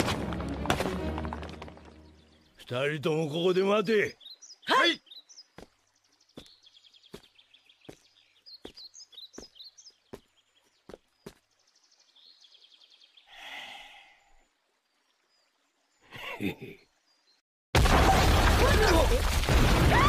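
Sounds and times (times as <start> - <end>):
faint birds chirping: 1.6 - 17.4
slow footsteps: 5.6 - 11.6.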